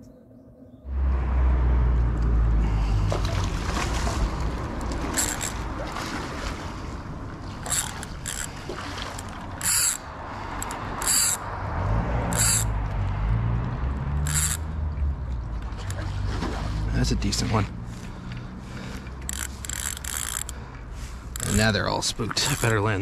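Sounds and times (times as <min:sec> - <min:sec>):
low rumble: 0:00.1 - 0:05.9
fishing reel drag buzzing: 0:05.2 - 0:05.6, 0:07.6 - 0:08.6, 0:09.2 - 0:11.4, 0:12.3 - 0:12.7, 0:14.2 - 0:14.7, 0:19.2 - 0:20.6, 0:21.3 - 0:21.6
reel clicking: 0:05.2 - 0:05.6, 0:07.6 - 0:11.5, 0:12.3 - 0:12.8, 0:14.2 - 0:14.6, 0:19.2 - 0:20.6, 0:21.3 - 0:21.7, 0:22.3 - 0:22.8.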